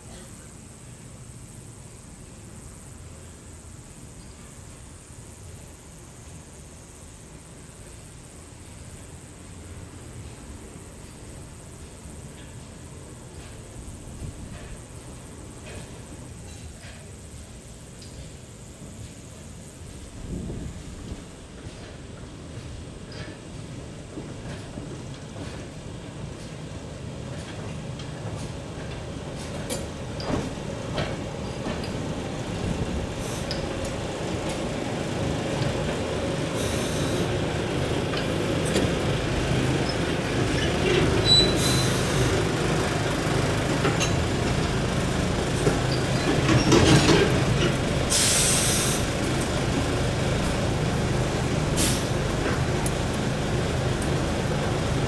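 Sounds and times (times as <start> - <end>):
train brake hisses: 0.0 - 24.0, 33.0 - 34.8, 36.4 - 42.7, 45.6 - 49.2, 51.4 - 52.9
diesel railcar engine running: 0.0 - 55.0
wheels clicking over rail joints: 20.5 - 55.0
train brake squeal: 36.6 - 37.3, 39.8 - 42.3, 48.1 - 49.0.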